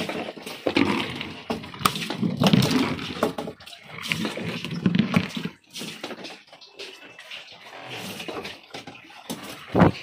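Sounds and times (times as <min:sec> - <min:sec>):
ice chunks clattering: 0:00.0 - 0:06.8
water sloshing: 0:00.0 - 0:10.0
wet fish slapping: 0:00.0 - 0:10.0.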